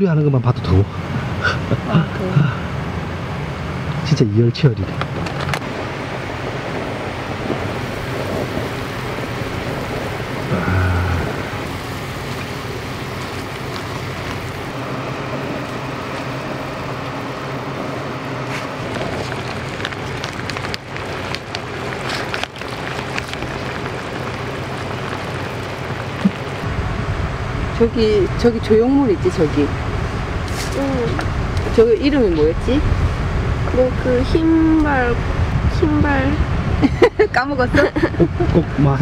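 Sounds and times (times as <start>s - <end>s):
soup boiling with bubbling hiss: 5.7s - 28.6s.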